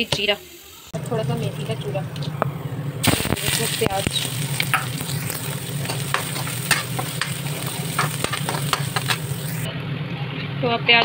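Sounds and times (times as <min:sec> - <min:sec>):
onions sizzling in hot oil: 0:00.0 - 0:09.7
steel spoon scraping a pan: 0:03.1 - 0:09.7.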